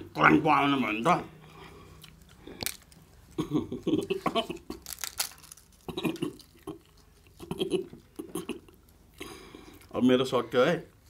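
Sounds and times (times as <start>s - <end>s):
papad crackling and snapping: 2.2s - 3.0s, 4.7s - 6.6s.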